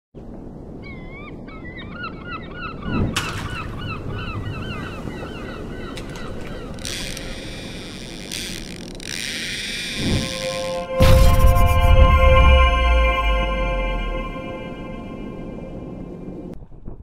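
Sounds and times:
gulls calling: 0.8s - 11.1s
whoosh: 10.0s - 16.4s
steady low rumble: 10.0s - 17.0s.

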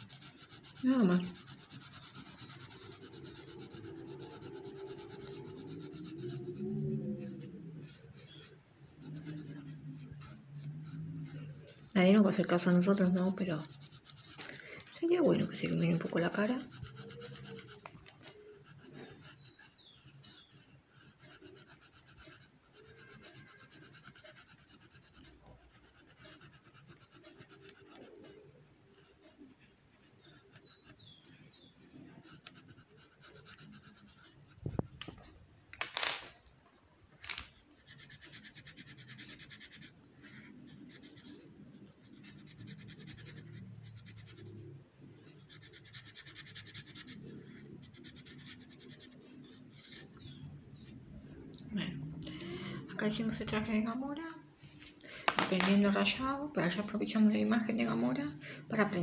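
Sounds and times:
pencil shading on paper: 0.0s - 14.4s, 15.0s - 34.6s, 37.8s - 50.4s.

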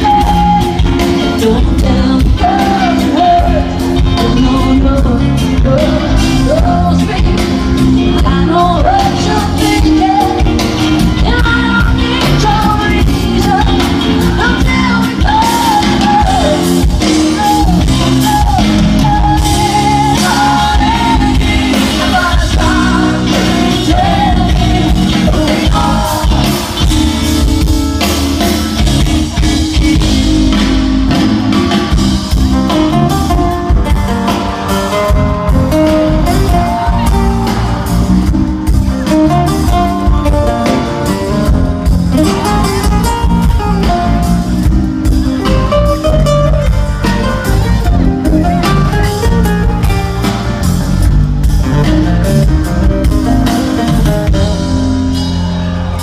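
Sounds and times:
woman singing: 0.0s - 27.0s
rock band playing live: 0.0s - 56.0s.

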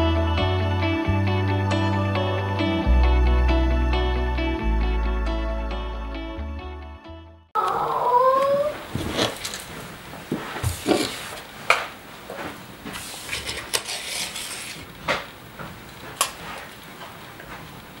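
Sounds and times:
soft rustling: 8.6s - 14.9s.

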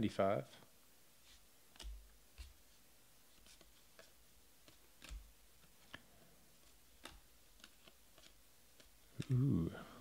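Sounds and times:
cards clicking and tapping: 1.7s - 2.6s, 3.4s - 9.5s.

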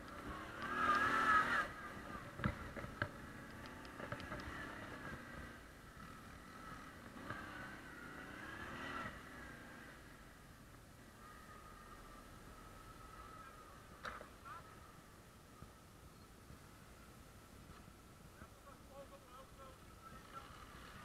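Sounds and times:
quad bike engine revving: 0.0s - 10.2s, 20.2s - 21.0s.

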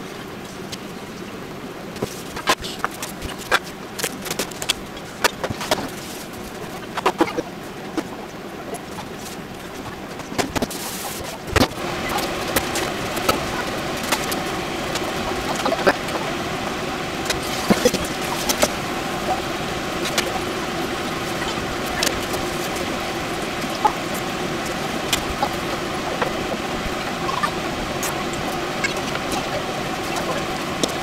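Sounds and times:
pot of water heating hum: 0.0s - 31.0s
bubbles ticking and popping: 11.4s - 31.0s.

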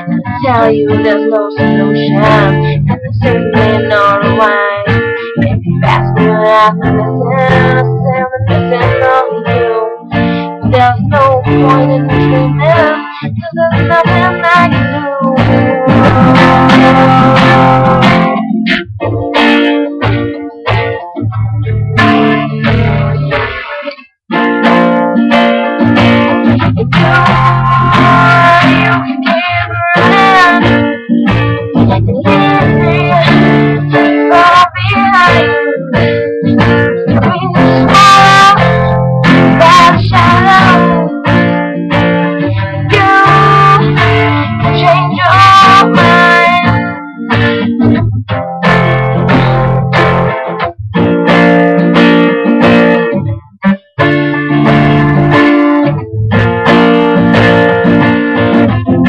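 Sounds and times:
woman singing: 0.0s - 18.6s, 26.0s - 47.9s
acoustic guitar: 0.0s - 59.0s.

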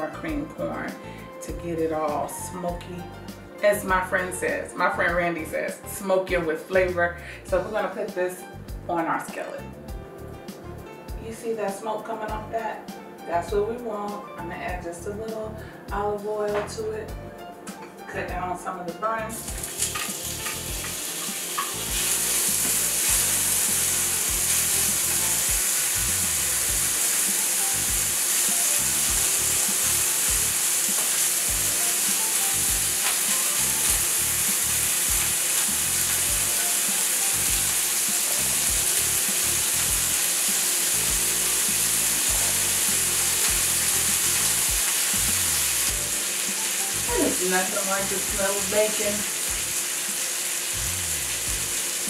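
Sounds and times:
bacon sizzling in a skillet: 19.3s - 52.0s.

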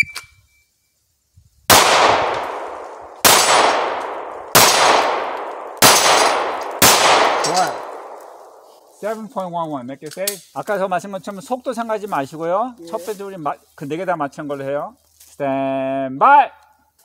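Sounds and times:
handgun shots: 1.7s - 8.2s.

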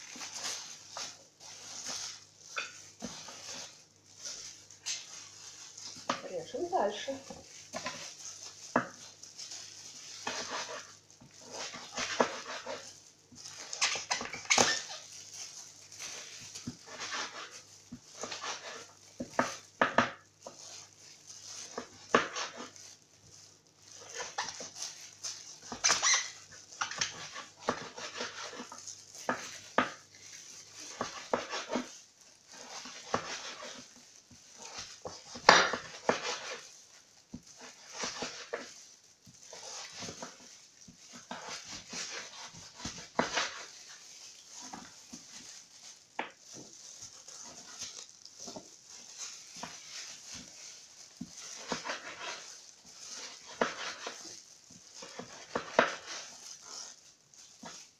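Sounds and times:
knife cutting pumpkin: 10.2s - 12.9s, 16.2s - 20.8s, 21.6s - 22.8s, 24.0s - 24.7s, 25.6s - 30.1s, 30.7s - 31.9s, 32.5s - 33.9s, 34.6s - 36.7s, 37.5s - 38.7s, 39.5s - 43.7s, 51.2s - 54.2s, 54.9s - 56.9s.

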